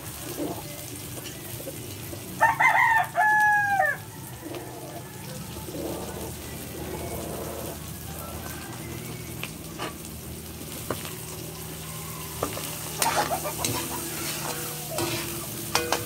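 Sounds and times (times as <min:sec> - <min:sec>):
rooster crowing: 0:02.4 - 0:05.4, 0:06.9 - 0:09.8, 0:11.2 - 0:15.6.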